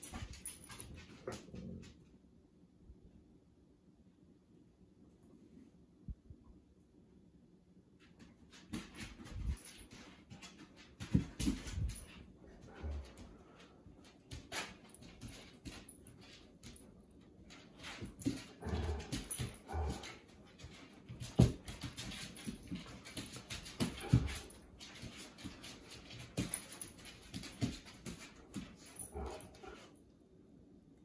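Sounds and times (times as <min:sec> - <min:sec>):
dogs scuffling: 0:00.0 - 0:01.9, 0:08.0 - 0:29.9
dogs growling playfully: 0:01.1 - 0:02.0, 0:18.1 - 0:20.7, 0:23.8 - 0:24.6, 0:28.8 - 0:29.9.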